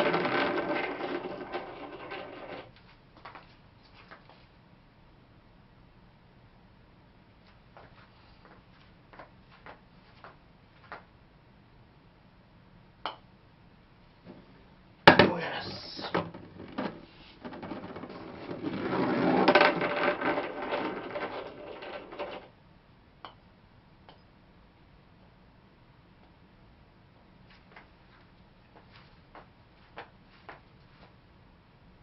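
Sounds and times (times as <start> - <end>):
ball rattling through ball return: 0.0 - 2.7, 16.0 - 22.5.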